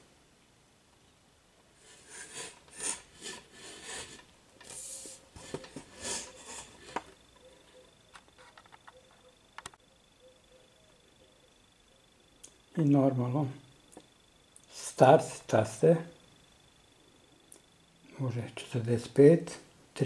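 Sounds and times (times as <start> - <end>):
faint steady hum: 0.0 - 20.0
rubbing and scraping handling noise: 1.8 - 9.3.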